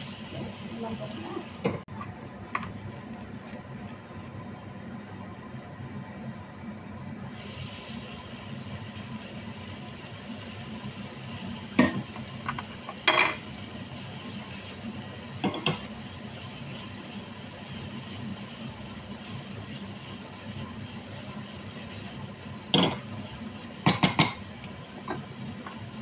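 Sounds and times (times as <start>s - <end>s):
sauce sizzling in a frying pan: 0.0s - 1.8s, 7.2s - 26.0s.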